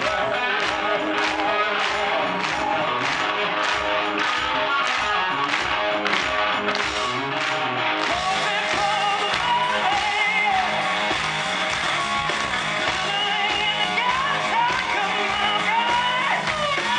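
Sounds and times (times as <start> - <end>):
live rock band playing: 0.0 - 16.9
singer singing: 0.0 - 16.9.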